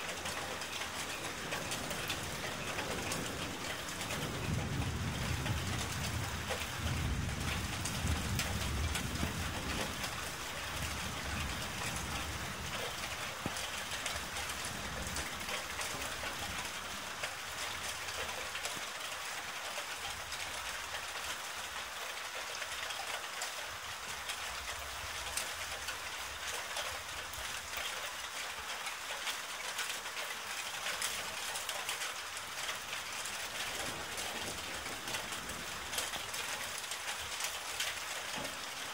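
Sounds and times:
steady rain hissing: 0:00.0 - 0:38.9
low thunder rumble: 0:01.3 - 0:17.0.

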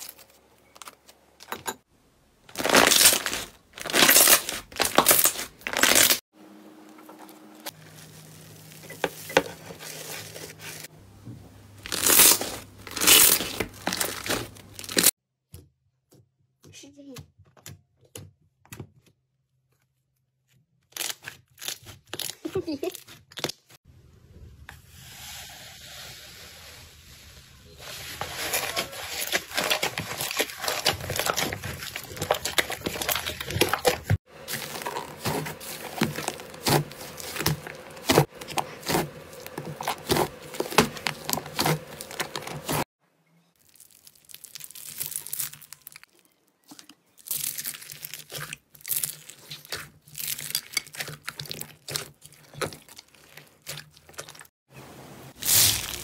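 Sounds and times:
hands squelching slime: 0:28.0 - 0:42.8, 0:43.6 - 0:54.5.

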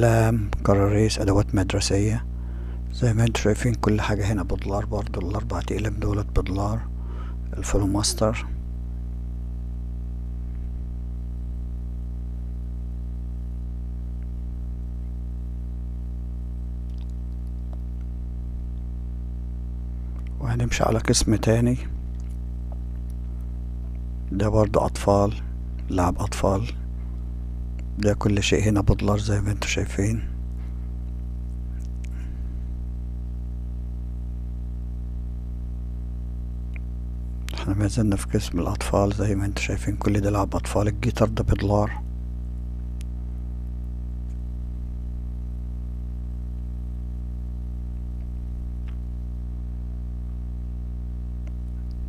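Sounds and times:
low hum: 0:00.0 - 0:52.0.

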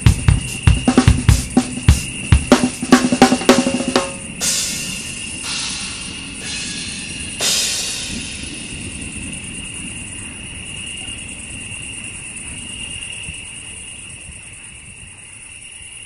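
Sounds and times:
cymbal crash ringing: 0:00.0 - 0:09.8
cricket chorus: 0:00.0 - 0:16.0.

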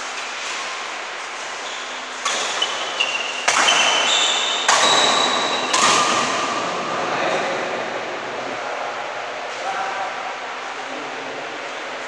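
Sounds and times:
rackets striking shuttlecock: 0:02.2 - 0:06.9.

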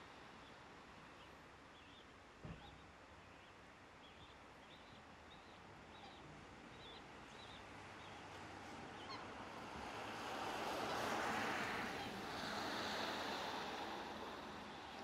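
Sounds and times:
steady rushing hiss: 0:11.7 - 0:15.0.

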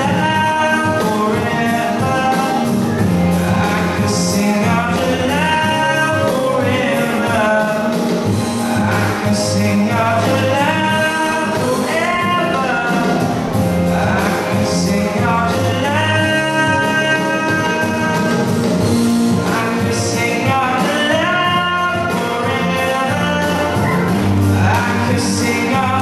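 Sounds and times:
amplified backing music: 0:00.0 - 0:26.0
man singing into microphone: 0:00.0 - 0:26.0.

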